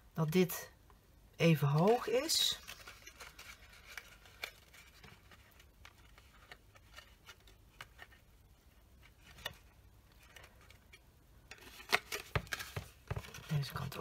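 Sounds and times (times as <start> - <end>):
paper crackling: 1.6 - 10.8.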